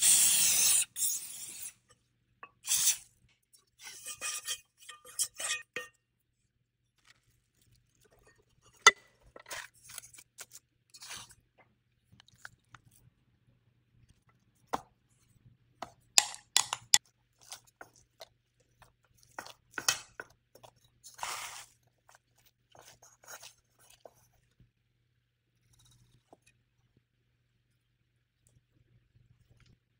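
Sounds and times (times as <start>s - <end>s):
sharp clicks and taps: 16.2s - 17.0s.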